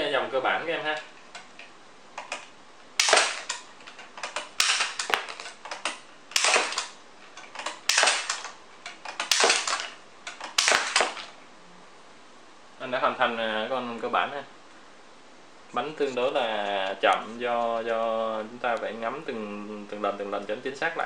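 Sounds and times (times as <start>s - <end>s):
toy card launcher snapping: 2.2s - 11.4s.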